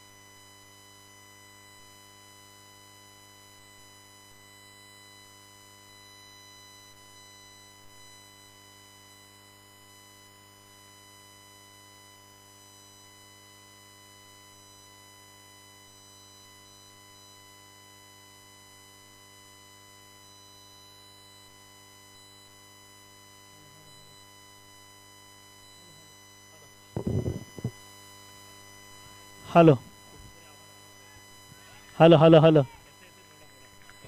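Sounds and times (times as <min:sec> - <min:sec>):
faint electrical buzz: 0:23.2 - 0:34.0.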